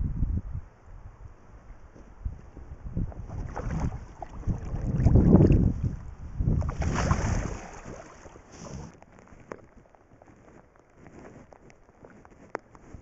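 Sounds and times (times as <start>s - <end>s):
river water splashing: 3.2s - 9.0s
faint watery hiss: 7.3s - 9.0s.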